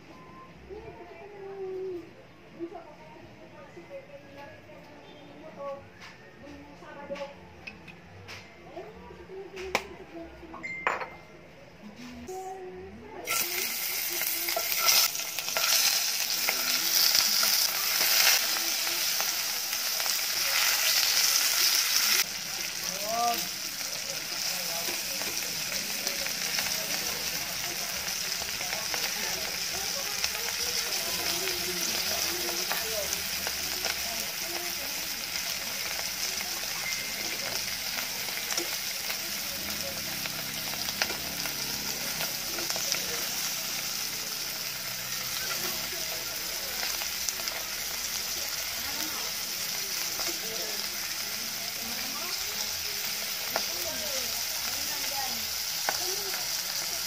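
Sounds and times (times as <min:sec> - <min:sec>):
fish sizzling in hot oil: 0:13.2 - 0:57.0.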